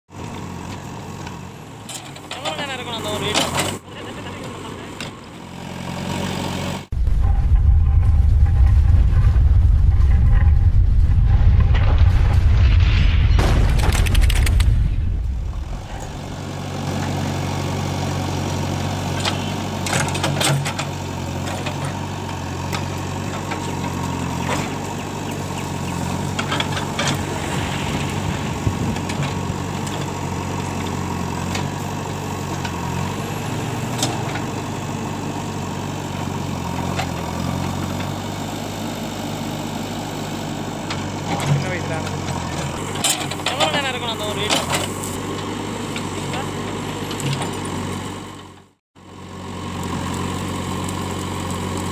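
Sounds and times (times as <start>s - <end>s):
diesel engine running: 0.1s - 51.9s
loud low rumble: 6.9s - 16.9s, 25.4s - 31.3s.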